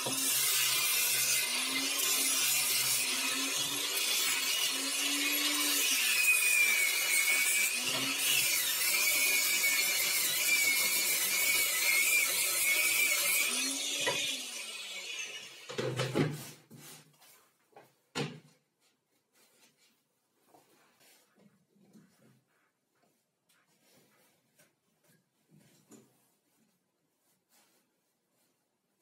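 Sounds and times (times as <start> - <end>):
angle grinder sanding wood: 0.0 - 17.1.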